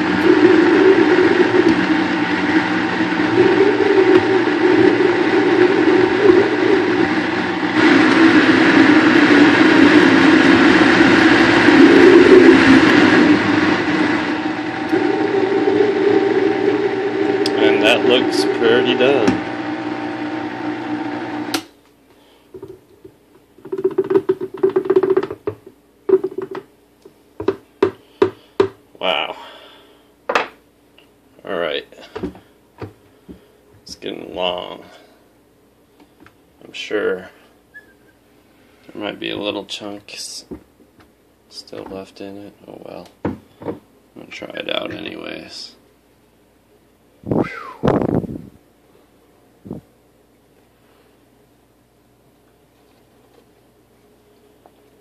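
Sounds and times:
blender motor running: 0:00.0 - 0:21.7.

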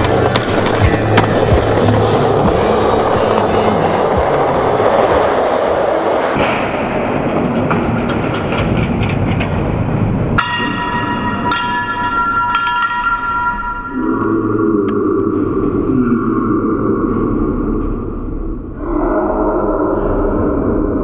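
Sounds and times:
skateboard wheels rolling on concrete: 0:00.0 - 0:10.4
ringing bell-like strikes: 0:10.4 - 0:14.2.

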